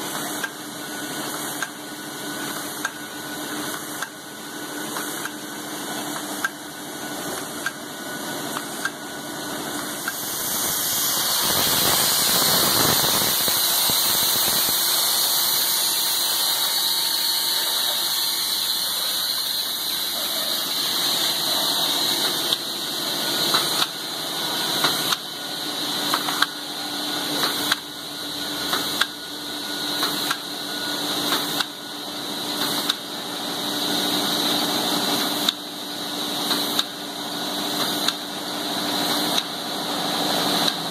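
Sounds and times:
machinery running: 8.1s - 30.3s
loud steady hiss: 9.9s - 23.7s
sharp machine clicks: 10.0s - 20.0s.

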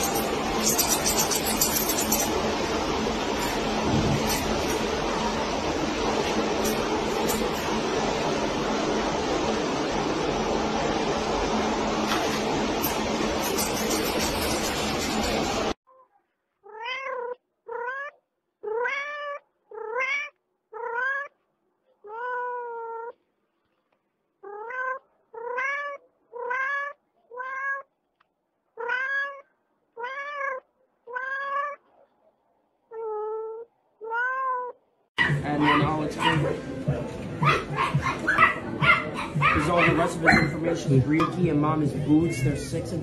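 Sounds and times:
steady loud rushing noise: 0.0s - 15.8s
cat meowing: 16.6s - 21.4s, 22.0s - 23.2s, 24.4s - 27.9s, 28.8s - 31.9s, 32.9s - 34.8s, 42.0s - 42.8s.

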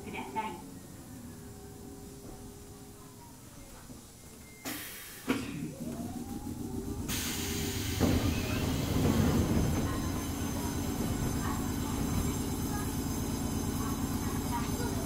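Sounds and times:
train wheel and motor noise: 4.3s - 15.0s.

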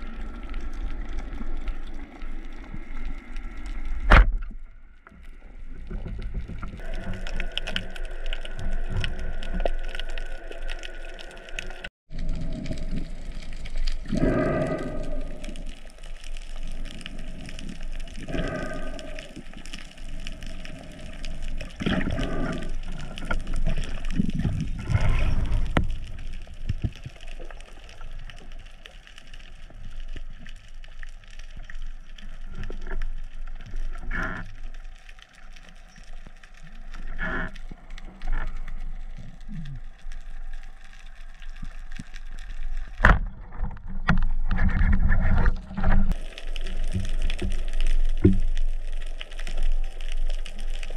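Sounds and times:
shifting underwater noise: 0.0s - 28.6s
small underwater clicks: 0.0s - 50.9s.

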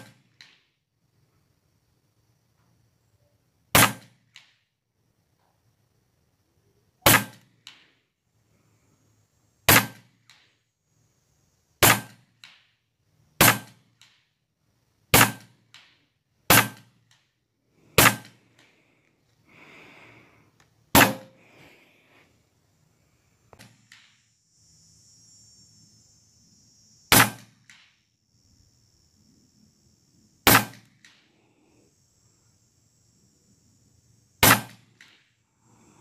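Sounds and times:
air rifle shots cracking: 3.7s - 4.4s, 7.0s - 7.8s, 9.7s - 10.4s, 11.8s - 12.6s, 13.4s - 14.1s, 15.1s - 15.9s, 16.5s - 16.9s, 18.0s - 18.4s, 20.9s - 21.4s, 27.1s - 27.9s, 30.4s - 31.2s, 34.4s - 35.2s.

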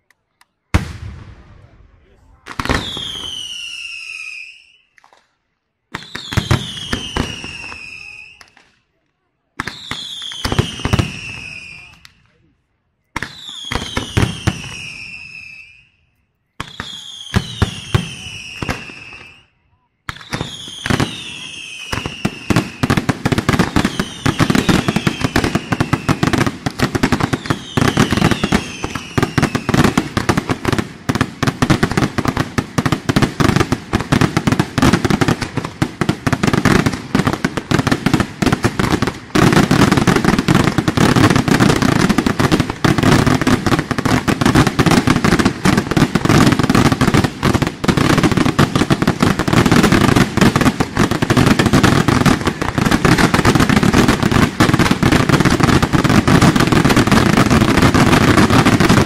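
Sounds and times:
firework whistles falling in pitch: 2.7s - 5.0s, 6.0s - 8.6s, 9.6s - 12.1s, 13.2s - 22.9s, 23.8s - 26.2s, 27.2s - 29.8s.

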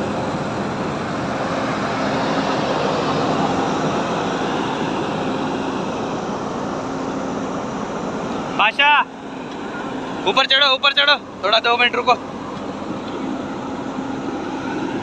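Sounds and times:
diesel excavator engine running: 0.0s - 15.0s.

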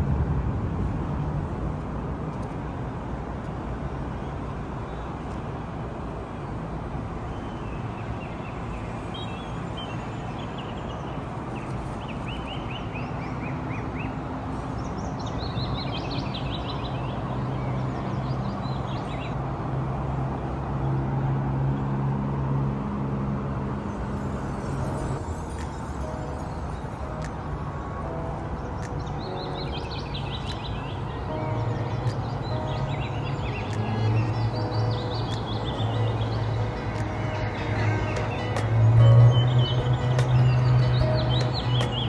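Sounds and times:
low drone: 0.0s - 2.3s, 22.9s - 42.0s
traffic noise: 0.0s - 42.0s
bird chirping in trills: 24.2s - 42.0s.

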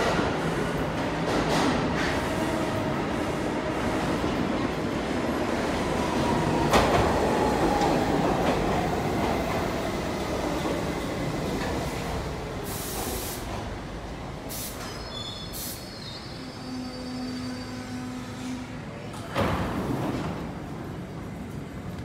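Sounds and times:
subway train wheels rumbling: 0.0s - 22.0s
short air hisses: 12.6s - 13.6s, 14.5s - 16.2s.

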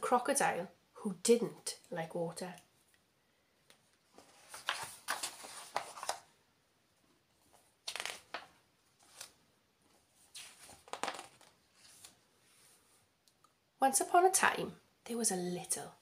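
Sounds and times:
book pages turning: 4.0s - 6.3s, 7.4s - 13.0s.

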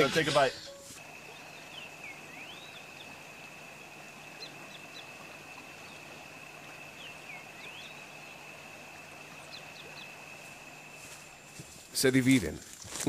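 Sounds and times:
birds calling in swooping whistles: 0.0s - 10.4s
high-pitched insect drone: 0.0s - 12.1s
faint low hum: 1.0s - 12.8s.

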